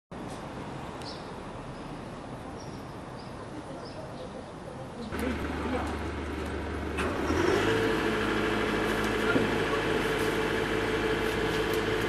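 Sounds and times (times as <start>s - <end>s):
engine idling: 5.1s - 12.0s.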